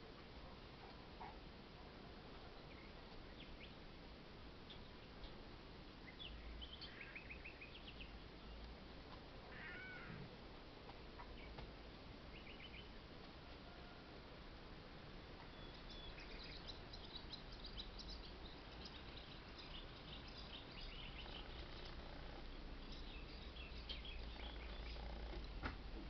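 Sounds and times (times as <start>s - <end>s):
faint cat meow: 9.5s - 10.3s.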